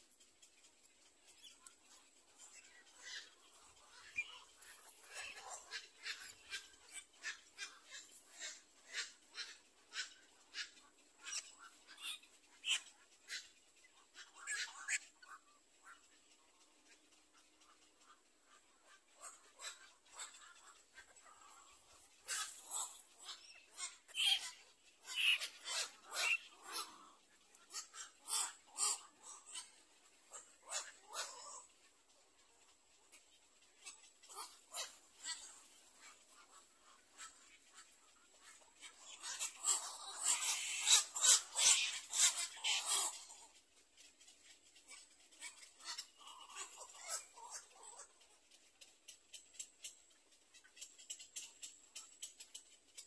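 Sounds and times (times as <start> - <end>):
herons rasping chatter: 0.0 - 53.0
herons harsh calls: 19.1 - 31.7, 38.4 - 43.5.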